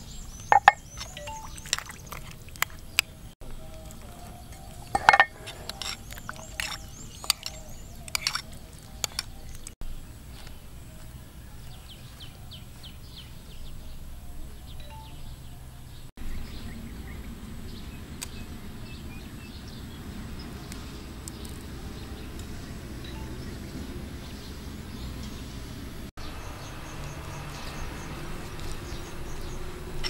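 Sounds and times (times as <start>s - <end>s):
bird chirps: 0.0s - 2.2s, 11.4s - 25.6s
low outdoor background noise: 0.0s - 30.0s
metal spoon clinking on bowl: 0.5s - 1.9s, 4.9s - 9.2s.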